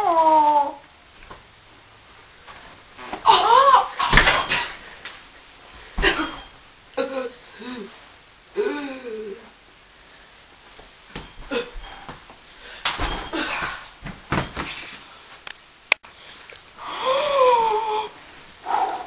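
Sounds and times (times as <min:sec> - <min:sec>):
boy shouting: 0:03.3 - 0:04.0
person wheezing and gasping: 0:07.0 - 0:09.6, 0:11.5 - 0:12.1, 0:12.7 - 0:13.9, 0:16.8 - 0:19.0.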